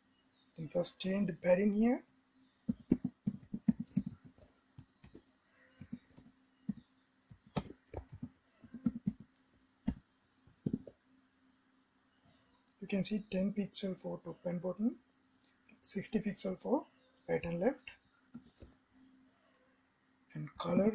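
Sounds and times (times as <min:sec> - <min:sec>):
computer keyboard typing: 0:02.7 - 0:10.9.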